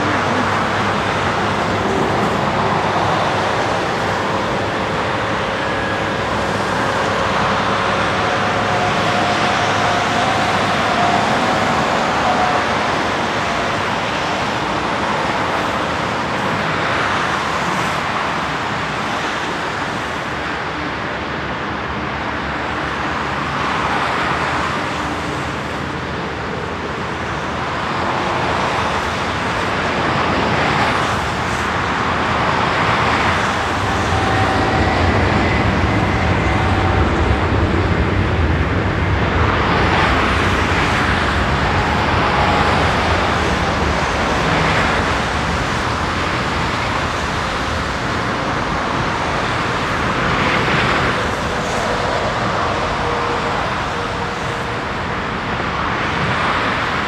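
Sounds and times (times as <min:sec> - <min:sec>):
diesel tug engine rumble: 0:00.0 - 0:57.0
jet noise rushing: 0:31.1 - 0:47.0.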